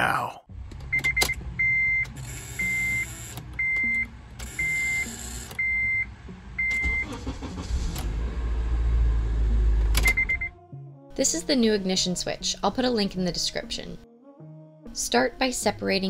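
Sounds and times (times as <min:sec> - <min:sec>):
dashboard warning chime beeping: 0:00.8 - 0:07.7, 0:10.0 - 0:10.6.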